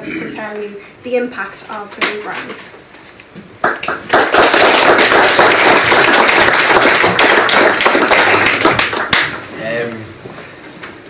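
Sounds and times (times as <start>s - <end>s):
small audience applauding: 3.6s - 9.6s.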